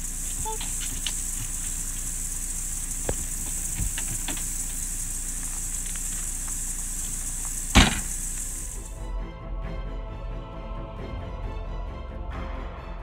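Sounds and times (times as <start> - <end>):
steady high hiss: 0.0 - 9.0
loud sharp bang: 7.7 - 8.2.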